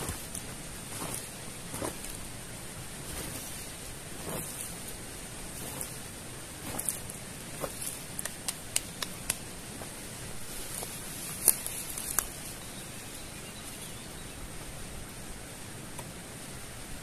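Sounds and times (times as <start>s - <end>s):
tarp rustling: 0.0s - 12.7s
steady hiss: 0.0s - 17.0s
light sharp clicks: 7.6s - 9.5s.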